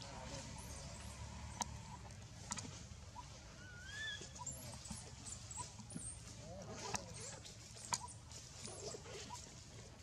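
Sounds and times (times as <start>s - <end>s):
rising whistled call: 3.2s - 4.6s.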